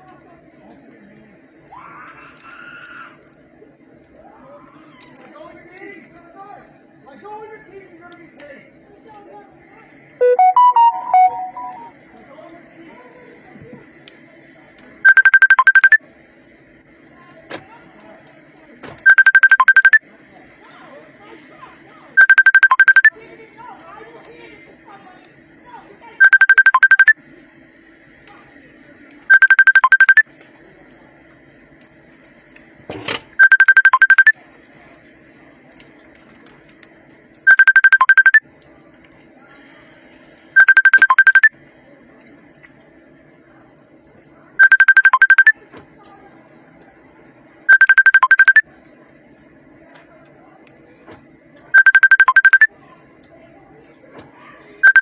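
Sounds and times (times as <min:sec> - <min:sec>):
rapidly pulsing alert beep: 0:10.2 - 0:12.0, 0:15.0 - 0:16.0, 0:19.1 - 0:20.0, 0:22.2 - 0:23.1, 0:26.2 - 0:27.2, 0:29.3 - 0:30.2, 0:33.4 - 0:34.4, 0:37.5 - 0:38.4, 0:40.6 - 0:41.5, 0:44.6 - 0:45.6, 0:47.7 - 0:48.6, 0:51.8 - 0:52.7.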